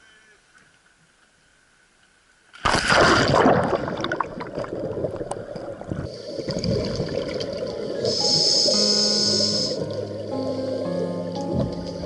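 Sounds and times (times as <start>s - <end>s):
loud splash into water: 2.6s - 5.0s
underwater bubbling rush: 2.6s - 10.8s.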